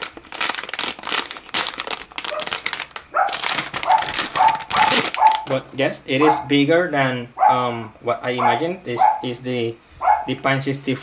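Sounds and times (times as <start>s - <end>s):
metallic bag crinkling: 0.0s - 5.8s
animal whining calls: 6.2s - 6.5s, 10.0s - 10.3s.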